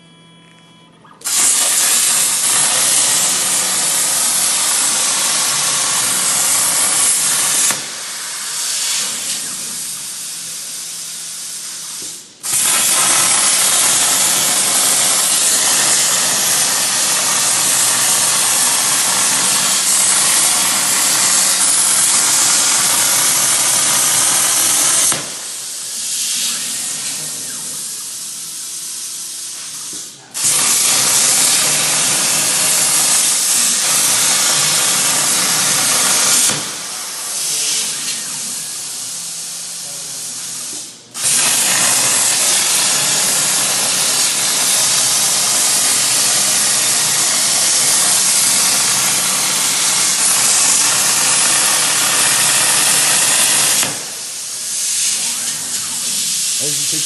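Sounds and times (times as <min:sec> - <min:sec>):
plasma torch hissing: 0:01.2 - 0:57.0.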